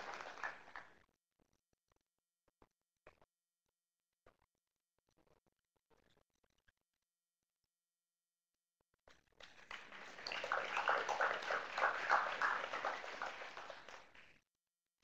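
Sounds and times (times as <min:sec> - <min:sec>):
audience applauding: 0:00.0 - 0:00.9, 0:09.4 - 0:14.3.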